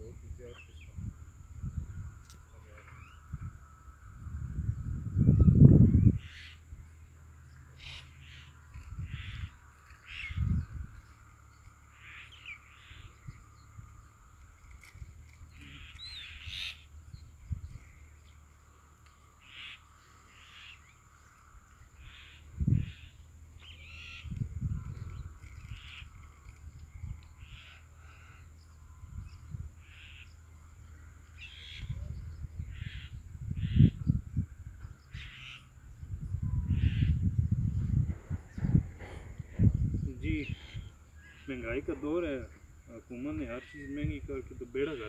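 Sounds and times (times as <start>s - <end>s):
low rumbling on microphone: 0.0s - 7.2s, 8.6s - 11.9s, 21.5s - 31.2s, 35.8s - 43.4s
birds calling: 0.0s - 45.0s.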